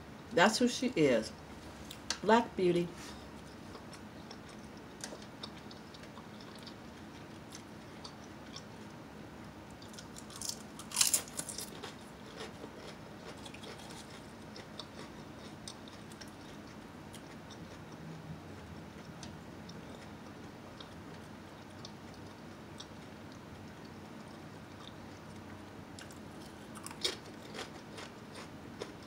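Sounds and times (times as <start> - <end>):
chips being crunched and chewed: 9.8 - 16.6, 26.0 - 29.0.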